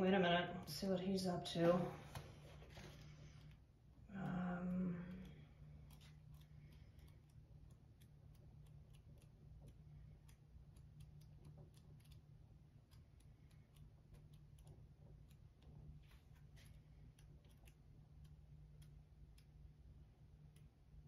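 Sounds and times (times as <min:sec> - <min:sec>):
low steady hum: 0:00.0 - 0:21.0.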